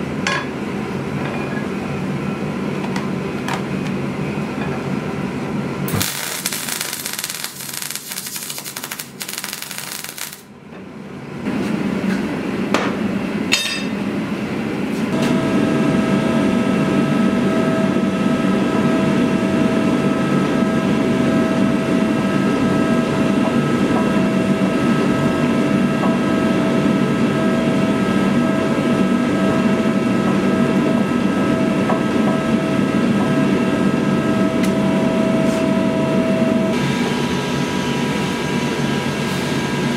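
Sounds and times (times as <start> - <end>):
forge roaring with a whine: 0.0 - 39.9
welder crackling and hissing: 5.9 - 10.5.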